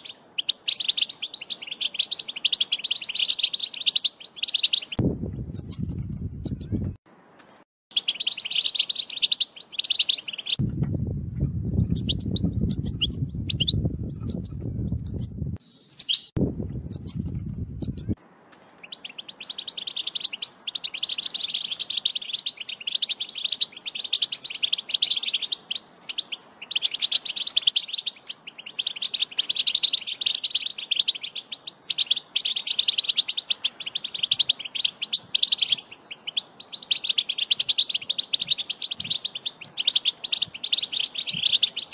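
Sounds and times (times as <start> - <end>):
goldfinch twittering song: 0.0 - 10.7, 11.4 - 41.9
low rumble: 10.6 - 15.6, 16.4 - 18.2.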